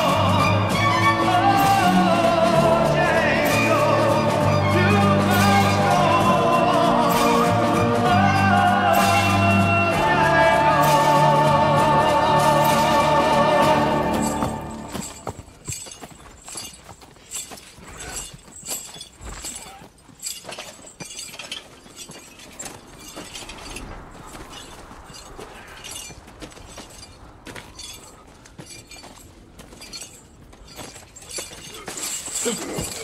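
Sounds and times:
horse walking: 0.0s - 33.0s
chains clinking and rattling: 10.7s - 33.0s.

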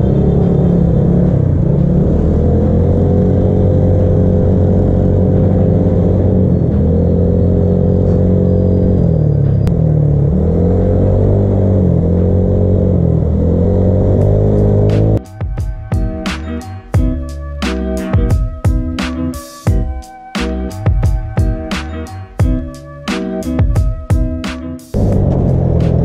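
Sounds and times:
scooter engine running: 25.0s - 26.0s.

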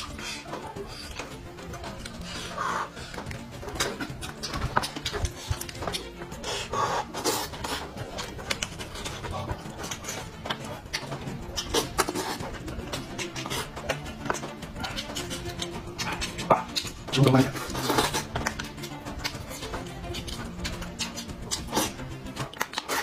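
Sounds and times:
breathing: 0.0s - 1.3s, 2.2s - 3.4s
wet chewing and slurping: 0.0s - 23.0s.

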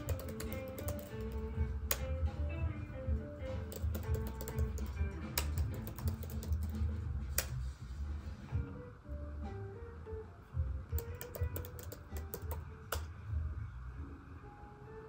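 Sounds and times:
laptop keyboard clicks: 0.0s - 2.1s, 3.7s - 6.8s, 11.0s - 13.1s
background music: 0.0s - 15.0s.

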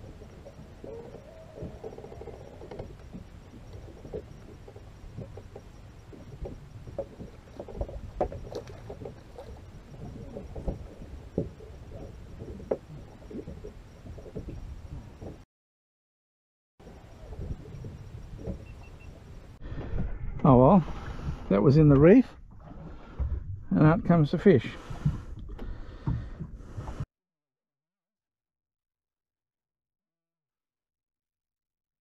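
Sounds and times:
knocks and light splashes: 0.0s - 15.4s
water lapping against boat hull: 0.0s - 15.4s, 16.8s - 27.0s.

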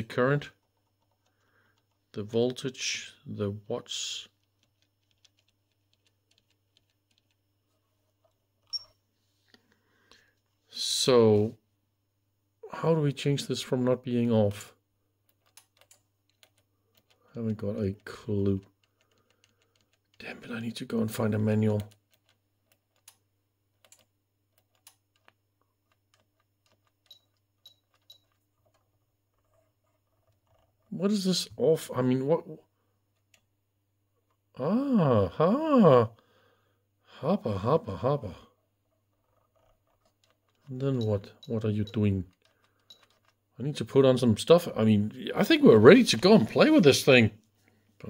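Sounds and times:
short high beeps: 8.7s - 9.0s.

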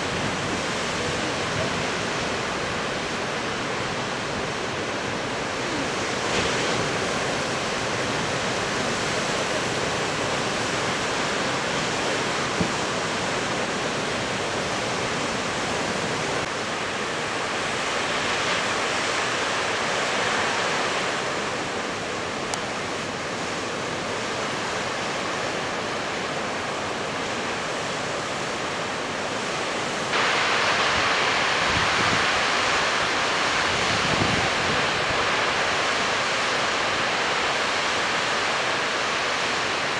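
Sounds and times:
surf crashing against rocks: 0.0s - 16.5s, 30.0s - 39.9s.

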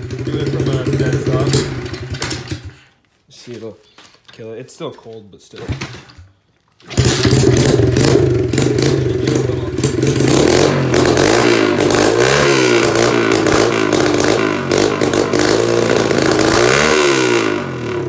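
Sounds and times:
motorcycle engine revving: 0.0s - 2.8s, 6.9s - 18.0s.

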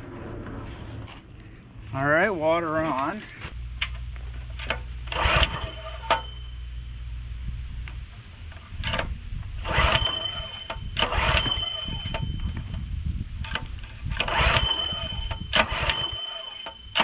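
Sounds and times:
pull-starter rasping whir: 2.9s - 6.8s, 7.8s - 17.0s
small engine cranking: 4.6s - 6.4s, 8.8s - 12.7s, 13.4s - 17.0s.

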